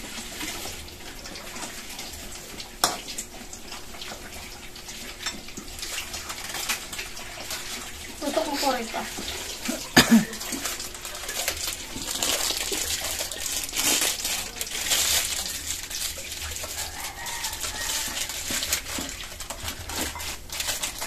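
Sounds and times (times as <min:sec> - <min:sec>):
food sizzling in oil: 0:01.7 - 0:21.0
chicken clucking: 0:16.7 - 0:18.4.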